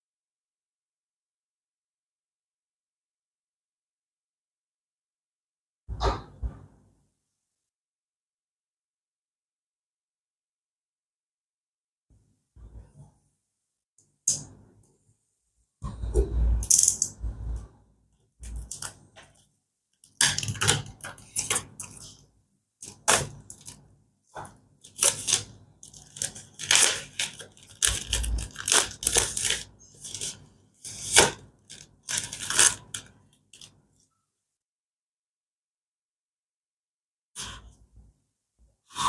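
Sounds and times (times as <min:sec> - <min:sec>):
plastic shrink-wrap crinkling: 0:24.9 - 0:30.4, 0:31.0 - 0:33.7.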